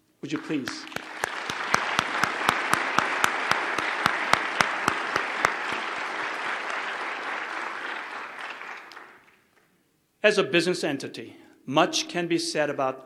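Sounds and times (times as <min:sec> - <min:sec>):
close single person clapping: 0:00.3 - 0:09.4
audience applauding: 0:00.3 - 0:09.5.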